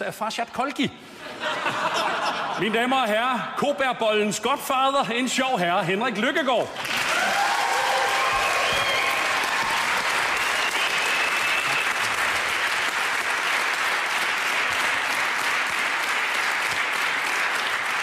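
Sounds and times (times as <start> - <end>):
audience applauding: 6.8 - 18.0.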